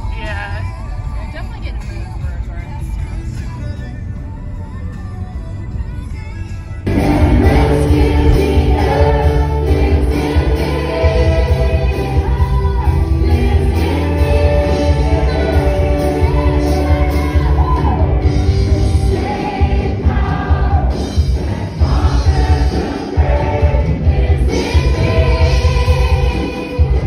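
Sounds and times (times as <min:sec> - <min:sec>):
live band playing: 0:05.6 - 0:27.0
vocalists singing: 0:06.1 - 0:27.0
strong bass line: 0:06.8 - 0:27.0.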